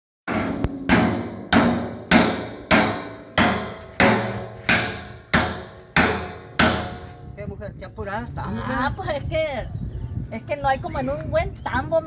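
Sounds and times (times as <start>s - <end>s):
hammer striking steel drum: 0.3s - 7.2s.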